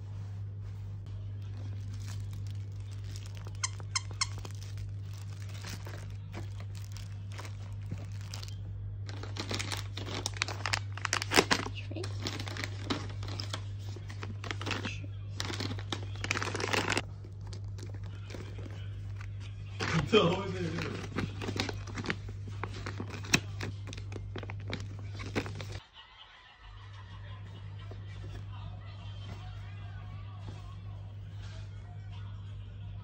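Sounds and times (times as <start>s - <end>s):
fabric and plastic folder rustling: 0.0s - 25.8s
steady low hum: 0.0s - 25.8s.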